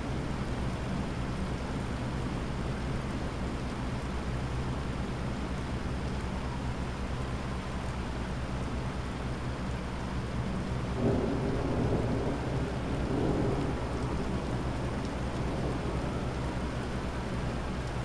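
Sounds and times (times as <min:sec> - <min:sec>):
steady rain falling: 0:00.0 - 0:18.0
thunder rumbling: 0:11.0 - 0:17.6.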